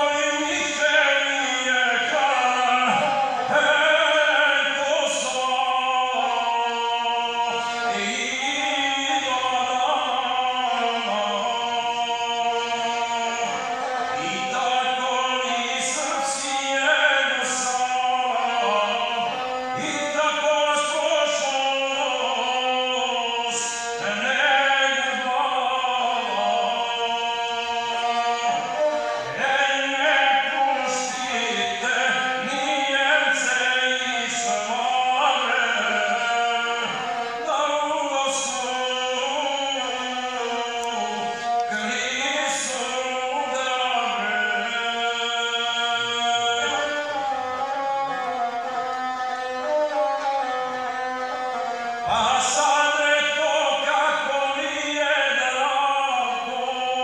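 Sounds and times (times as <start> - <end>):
bowed single-string fiddle: 0.0 - 57.0
man singing: 0.0 - 57.0.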